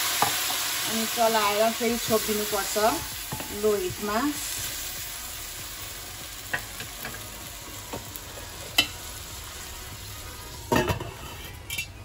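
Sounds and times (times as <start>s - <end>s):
rice sizzling in oil: 0.0s - 11.8s
metal lid clattering on pan: 10.7s - 12.0s.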